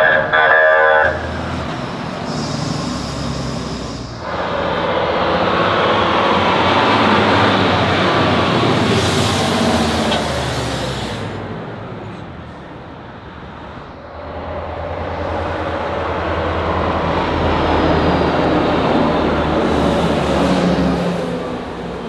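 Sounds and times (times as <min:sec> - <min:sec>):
approaching truck engine: 0:00.0 - 0:22.0
truck diesel engine passing: 0:00.0 - 0:22.0.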